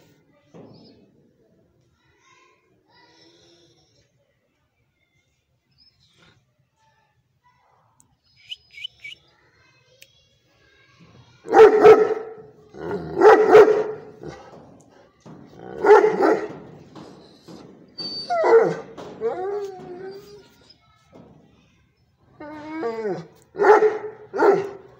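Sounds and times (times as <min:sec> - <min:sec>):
dog barking: 0:11.5 - 0:14.5, 0:15.7 - 0:16.6, 0:18.4 - 0:19.0, 0:23.6 - 0:24.9
faint high squeaks: 0:15.1 - 0:23.4.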